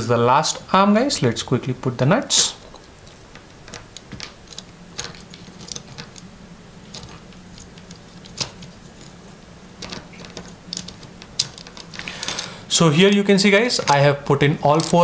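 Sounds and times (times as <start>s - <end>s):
small screws clicking: 2.7s - 6.3s, 9.8s - 12.5s.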